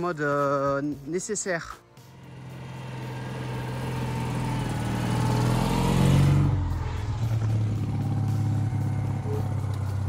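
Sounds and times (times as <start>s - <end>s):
car engine passing by: 2.0s - 10.0s.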